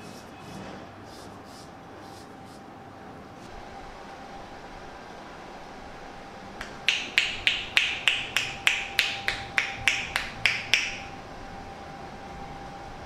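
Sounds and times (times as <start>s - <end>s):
sharp hand claps: 6.6s - 11.1s.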